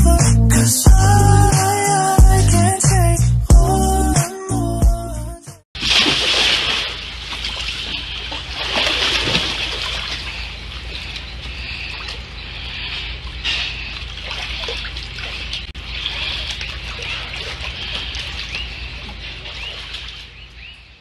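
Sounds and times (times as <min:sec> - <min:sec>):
water splashing in pool: 0:05.8 - 0:21.0.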